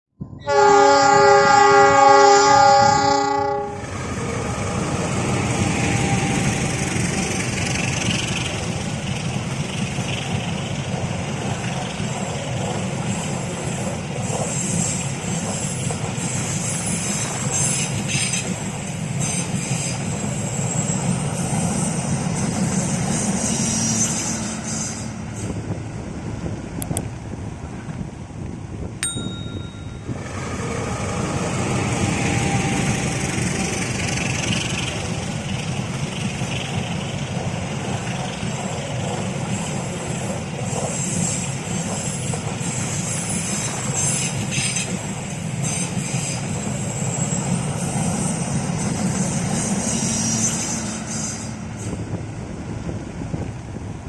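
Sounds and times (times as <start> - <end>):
train horn chord: 0.4 - 4.0
train wheels clattering on rails: 4.1 - 25.8, 29.5 - 52.4.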